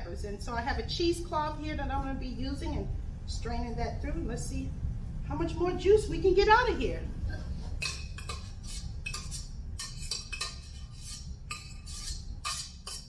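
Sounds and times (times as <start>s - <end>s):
low steady hum: 0.0s - 13.0s
kitchen utensils and dishes clinking: 7.8s - 13.0s.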